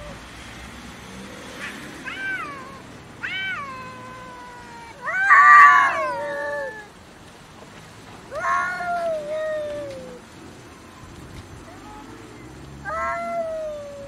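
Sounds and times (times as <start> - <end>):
cat yowling aggressively: 1.6 - 6.9, 8.3 - 10.2, 12.8 - 14.0.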